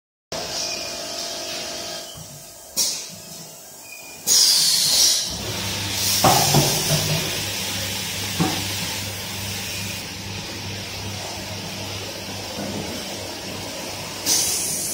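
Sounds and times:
spray hiss: 4.2 - 7.4, 14.2 - 14.9.

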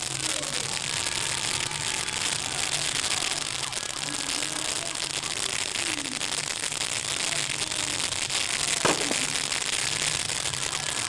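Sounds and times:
steady firework hiss: 0.0 - 11.0
firework bang: 8.7 - 10.1.

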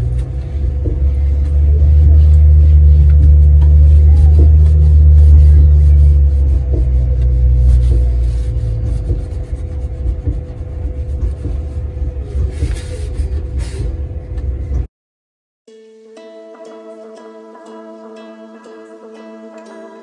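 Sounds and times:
plucked string background music: 0.0 - 12.6, 15.7 - 20.0
low rumble with hum: 0.0 - 14.9.

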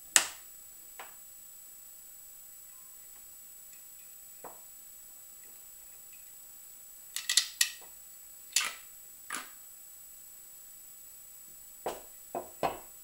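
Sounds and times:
small hard parts clicking: 7.1 - 7.9.

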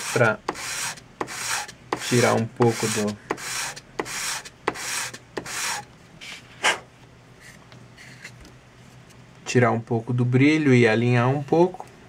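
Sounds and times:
sanding on sandpaper: 0.0 - 5.8
sharp scrape: 0.0 - 6.8.

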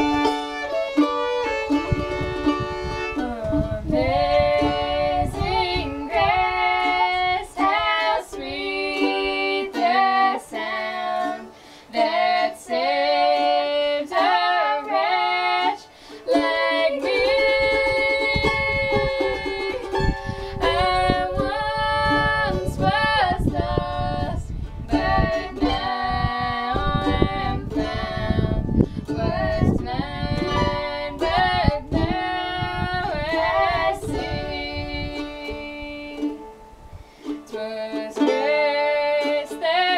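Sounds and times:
mandolin strumming: 0.0 - 39.9
women singing folk song: 0.0 - 39.9.

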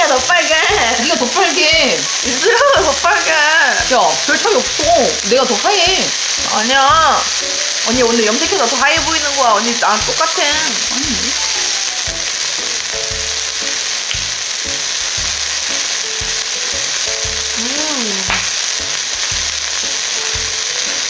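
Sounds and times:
meat sizzling on a grill pan: 0.0 - 21.0.

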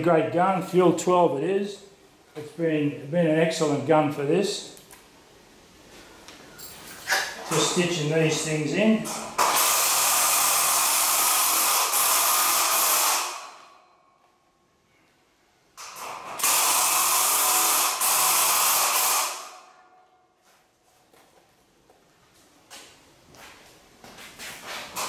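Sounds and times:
drill driving screws into steel: 9.4 - 13.6, 15.8 - 19.6.

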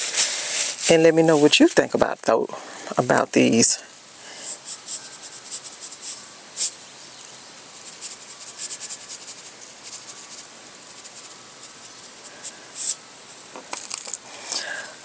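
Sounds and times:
plastic salt shaker rattling: 4.5 - 6.8, 7.6 - 13.0, 13.6 - 14.2.

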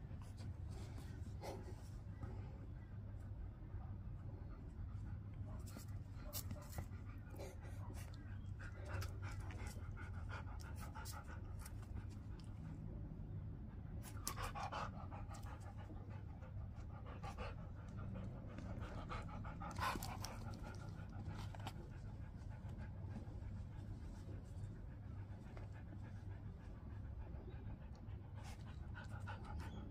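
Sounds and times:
dog panting: 5.6 - 12.8, 13.7 - 29.9.

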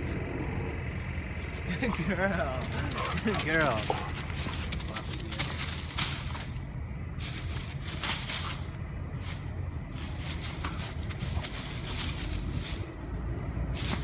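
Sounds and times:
low steady rumble: 0.0 - 14.0
dry leaves rustling and crunching: 0.8 - 14.0.

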